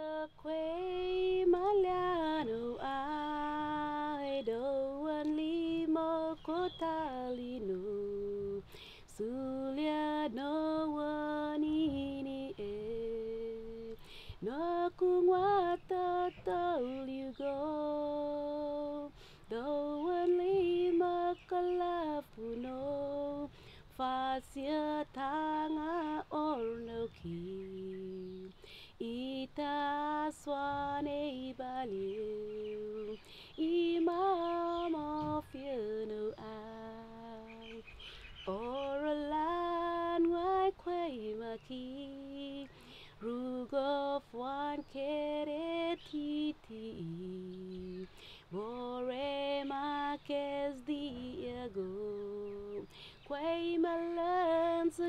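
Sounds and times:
woman singing unaccompanied: 0.0 - 55.0.

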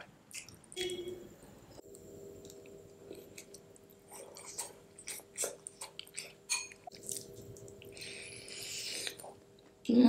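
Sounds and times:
faint steady hum: 0.0 - 10.0
close chewing and mouth smacks: 0.3 - 0.9, 2.4 - 9.8.

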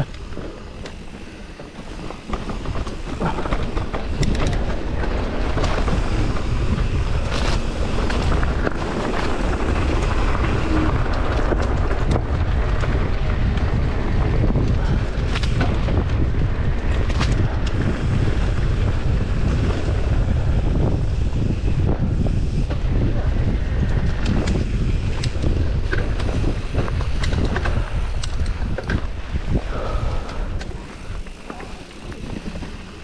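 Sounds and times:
tyres rumbling over dirt: 0.0 - 33.0
wind buffeting microphone: 0.0 - 33.0.

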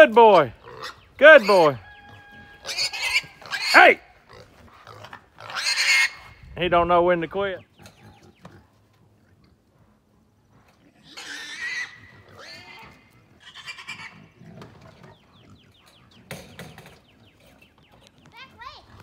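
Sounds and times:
pig squealing: 0.6 - 6.4, 10.9 - 16.2.

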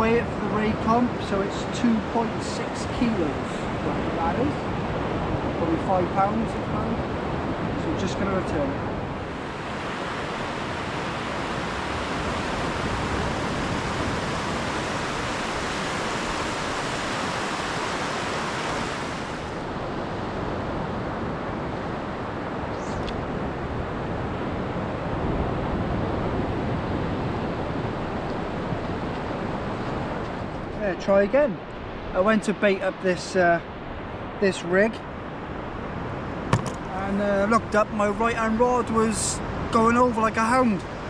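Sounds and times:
low wind rumble: 0.0 - 41.0
surf breaking on beach: 3.3 - 19.8.

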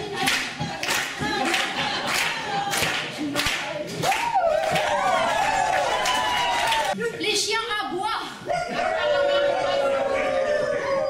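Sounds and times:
voices singing wordless tune: 0.0 - 4.0
audience clapping along: 0.0 - 7.0.

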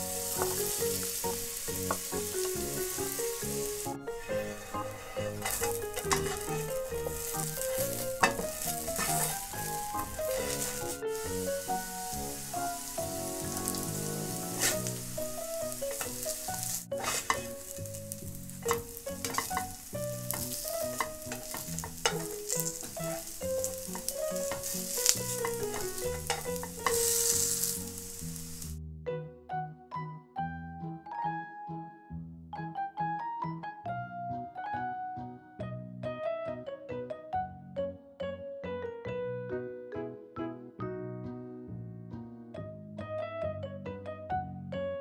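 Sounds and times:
spatula scraping pan: 0.0 - 28.7
potato sizzling in oil: 0.0 - 28.8.

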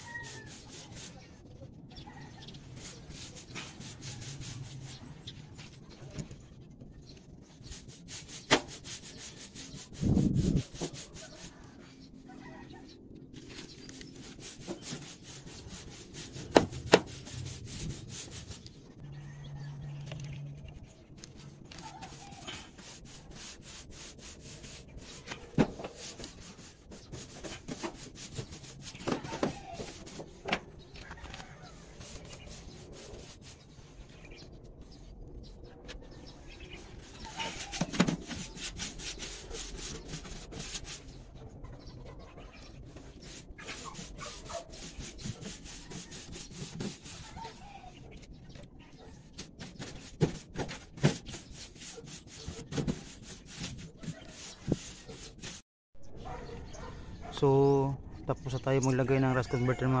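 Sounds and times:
brush bristles rasping on metal: 0.0 - 1.2, 2.7 - 5.1, 7.6 - 11.7, 13.6 - 18.7, 21.7 - 30.4, 31.8 - 33.8, 36.9 - 41.1, 43.0 - 47.6, 49.4 - 55.6.

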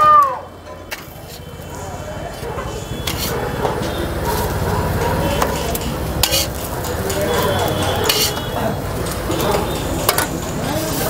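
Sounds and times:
metal spatula scraping griddle: 2.7 - 11.0.

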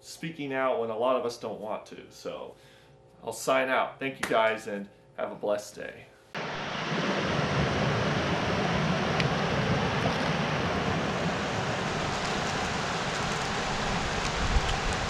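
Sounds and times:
river flowing over rocks: 6.4 - 15.0.

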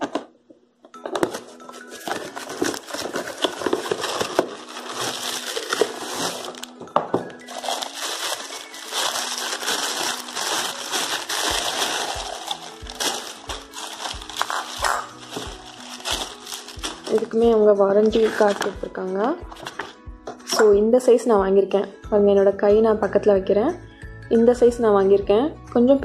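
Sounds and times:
plastic packaging crinkling: 1.2 - 18.9.

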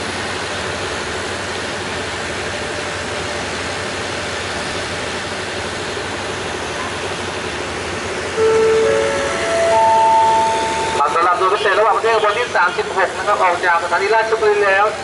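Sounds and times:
train coaches rolling: 0.0 - 15.0
rising four-note chime: 8.4 - 11.0.

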